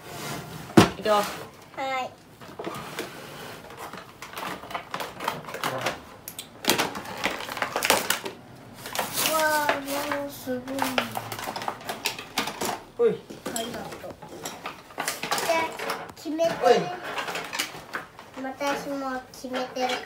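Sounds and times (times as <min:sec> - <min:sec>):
child's wordless voice: 0:01.7 - 0:02.2, 0:09.0 - 0:11.5, 0:13.4 - 0:14.2, 0:15.3 - 0:17.2, 0:18.3 - 0:20.0.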